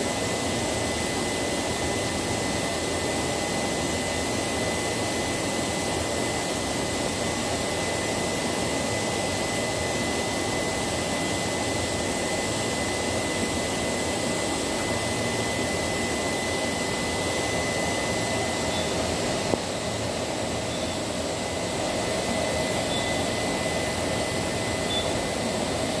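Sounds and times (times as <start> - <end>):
machinery hum and hiss: 0.0 - 26.0
high-pitched whine: 9.4 - 26.0
faint short beeps: 22.9 - 23.2, 24.8 - 25.2.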